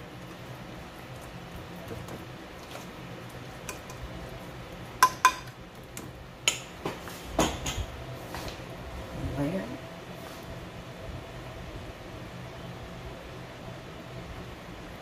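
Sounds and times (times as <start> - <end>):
utensil knocking metal bowl: 5.0 - 5.6.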